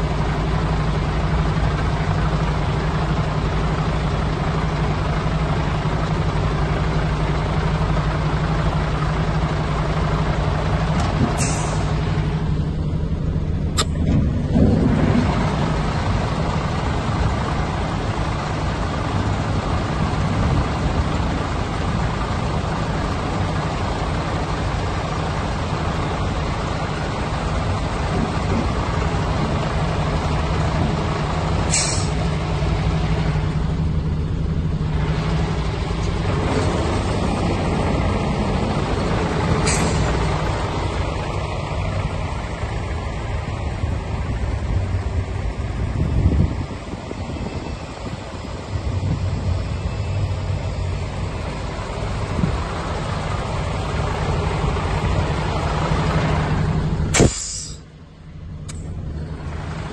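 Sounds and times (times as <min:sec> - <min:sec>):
diesel engine humming: 0:00.0 - 0:59.9
air hisses: 0:57.1 - 0:57.9.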